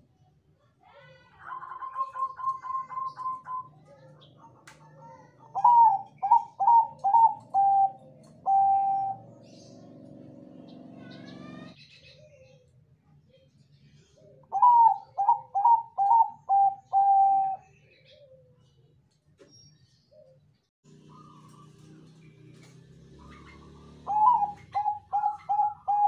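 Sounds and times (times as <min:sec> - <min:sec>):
dove cooing: 0:01.4 - 0:10.2, 0:14.2 - 0:18.7, 0:21.0 - 0:26.0.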